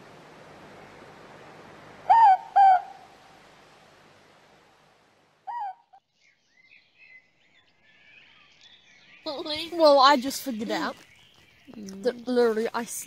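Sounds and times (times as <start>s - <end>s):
owl hooting: 2.0s - 3.1s, 5.4s - 6.0s.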